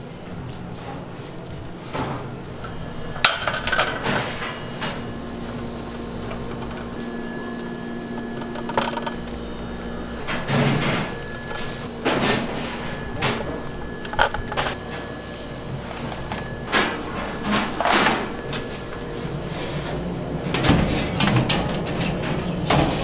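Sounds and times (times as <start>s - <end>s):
steady hum: 0.0s - 23.0s
metal baking pans clattering: 3.1s - 5.0s, 20.4s - 23.0s.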